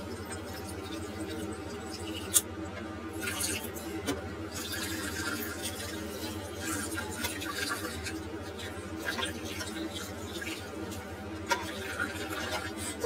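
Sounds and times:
water pouring and splashing: 0:03.1 - 0:13.0.

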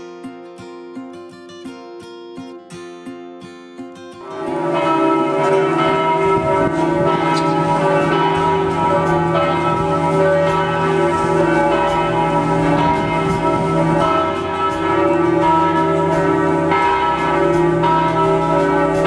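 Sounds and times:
church bells ringing: 0:04.2 - 0:19.0.

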